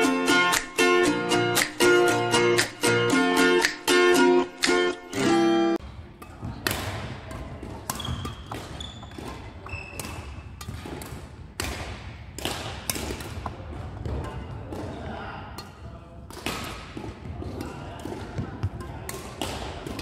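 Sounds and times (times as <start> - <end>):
plucked-string tune: 0.0 - 5.8
badminton rackets hitting shuttlecocks: 0.0 - 20.0.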